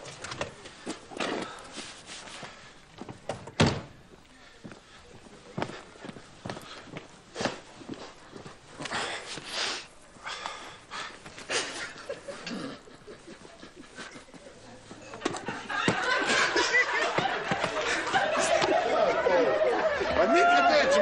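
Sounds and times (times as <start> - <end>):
person breathing hard and snorting: 8.8 - 12.9.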